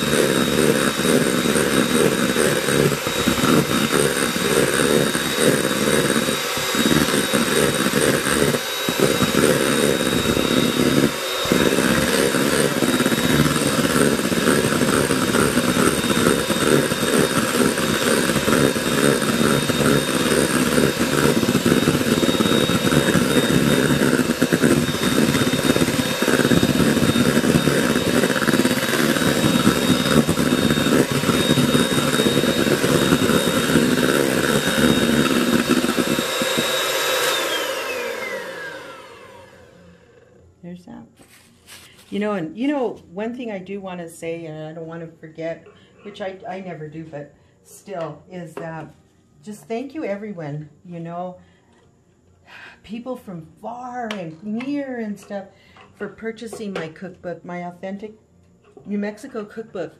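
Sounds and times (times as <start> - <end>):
beaters whipping in a metal bowl: 0.0 - 37.4
electric hand mixer whining: 0.0 - 40.6.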